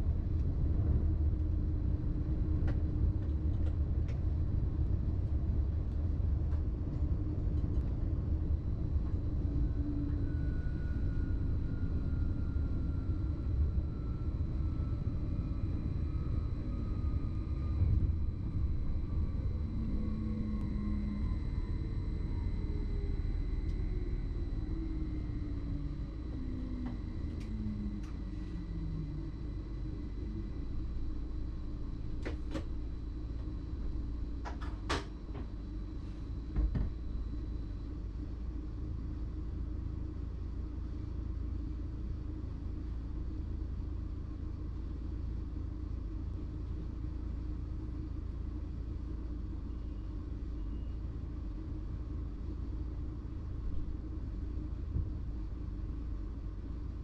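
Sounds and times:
traction motor whine: 8.4s - 38.1s.

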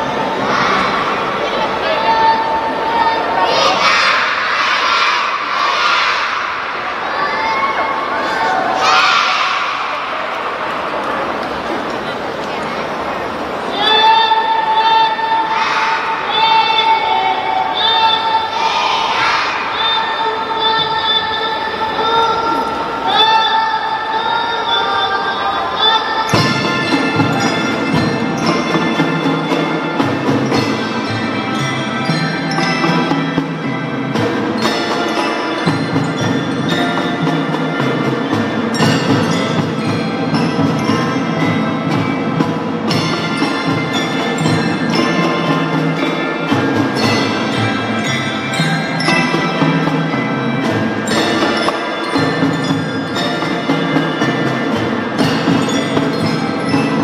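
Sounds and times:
mallet percussion melody: 25.7s - 57.0s.

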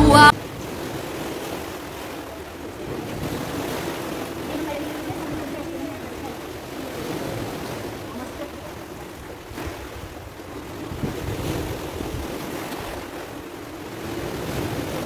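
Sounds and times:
surf washing over rocks: 0.0s - 15.0s
wind rumbling on microphone: 9.4s - 15.0s.

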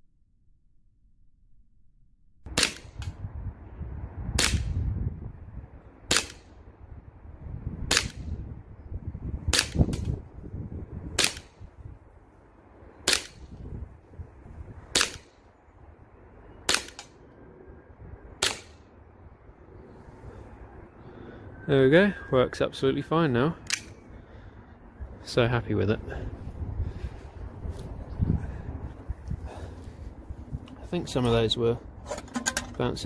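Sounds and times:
steady low rumble: 0.0s - 33.0s.

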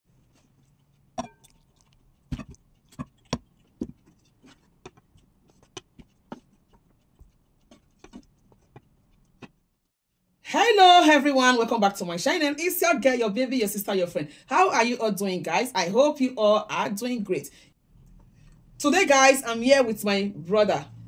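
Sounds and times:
spoon clinking against pot: 1.2s - 1.6s.

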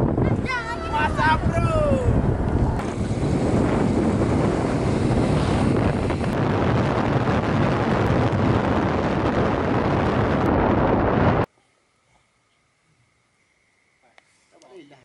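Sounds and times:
motorcycle road noise: 0.0s - 11.5s
wind buffeting microphone: 0.0s - 11.5s.

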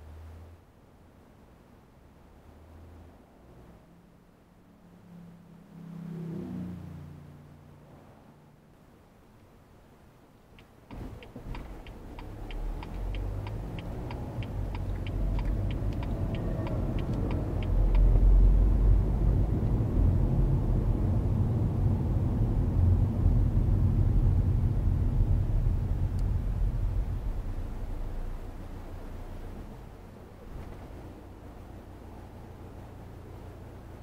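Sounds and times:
road rumble: 0.0s - 34.0s
turn signal ticking: 10.6s - 18.6s
car engine accelerating: 10.9s - 21.0s.

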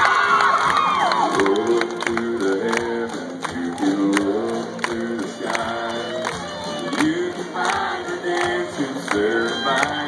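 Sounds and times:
audience cheering: 0.0s - 1.8s
audience clapping along: 0.0s - 10.0s
live country band playing: 0.0s - 10.0s.

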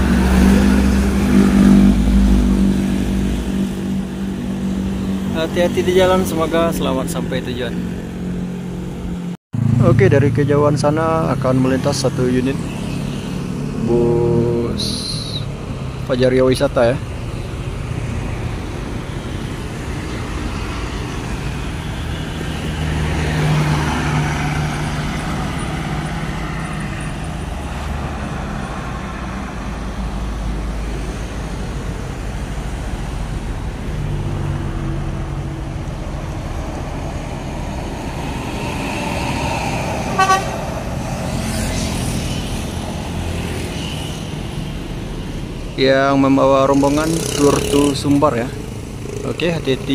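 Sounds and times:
cars and motorcycles passing: 0.0s - 49.9s
vehicle horn toot: 40.1s - 40.6s.

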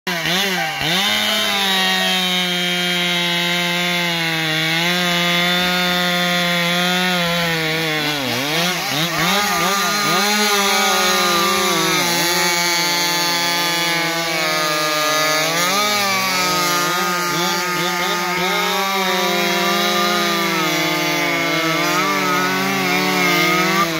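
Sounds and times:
chainsaw cutting log: 0.1s - 23.9s.

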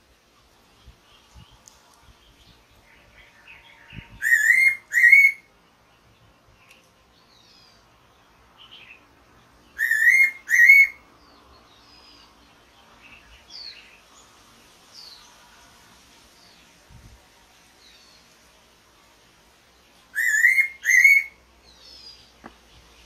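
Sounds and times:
faint bird chirps: 0.5s - 15.5s, 19.9s - 23.0s.

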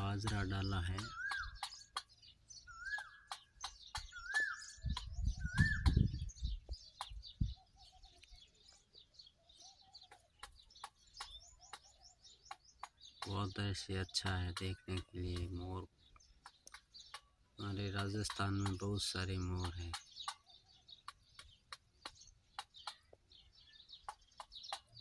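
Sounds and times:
small birds chirping: 0.0s - 25.0s
whistled bird note: 1.0s - 1.7s, 2.7s - 3.4s, 4.0s - 6.6s.

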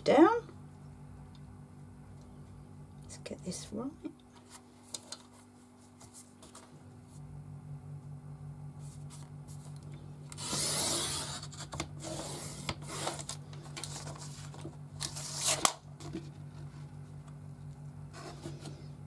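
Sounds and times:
paper trimmer rasping: 10.3s - 13.3s.

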